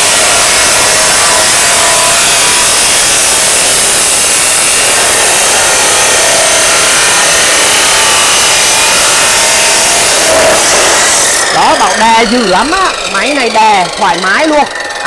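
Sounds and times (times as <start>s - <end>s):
cut-off saw grinding metal: 0.0s - 15.0s.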